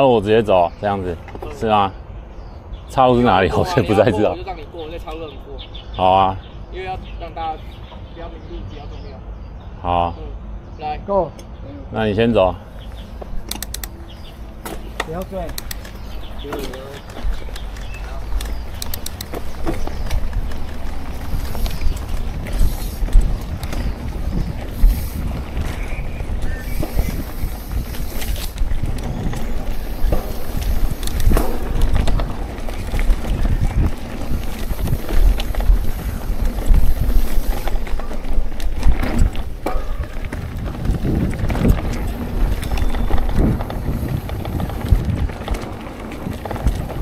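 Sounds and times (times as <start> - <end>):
wind buffeting microphone: 11.5 - 47.0
bike rattling over bumps: 12.3 - 47.0.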